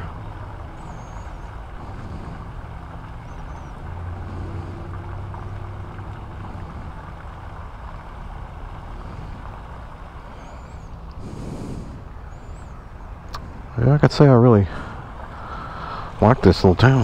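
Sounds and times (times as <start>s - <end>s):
vehicle engine idling: 0.0s - 17.0s.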